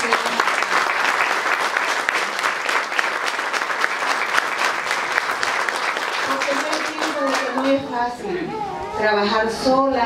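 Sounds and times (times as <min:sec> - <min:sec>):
people applauding: 0:00.0 - 0:07.9.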